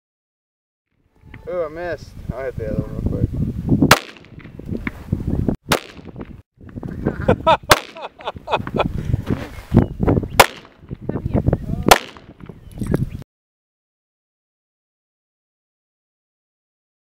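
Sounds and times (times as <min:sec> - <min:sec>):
gunshots cracking: 0:03.9 - 0:04.4, 0:05.7 - 0:06.1, 0:07.7 - 0:08.1, 0:10.4 - 0:10.8, 0:11.9 - 0:12.3.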